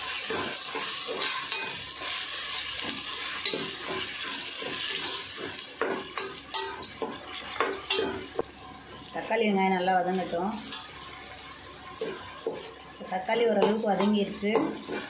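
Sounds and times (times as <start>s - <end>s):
spatula scraping metal pan: 0.0s - 8.4s
vegetables sizzling in hot oil: 0.0s - 15.0s.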